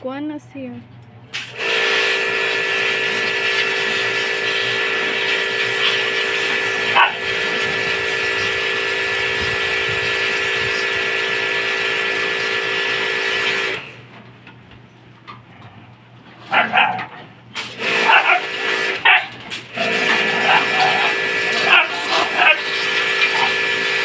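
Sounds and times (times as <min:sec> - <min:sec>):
pressure washer motor hum: 0:01.2 - 0:14.7, 0:16.5 - 0:24.0
water spray hissing: 0:01.3 - 0:13.8, 0:17.6 - 0:24.0
dog yelping: 0:06.8 - 0:07.4, 0:16.5 - 0:17.1, 0:18.0 - 0:19.4, 0:20.0 - 0:23.6.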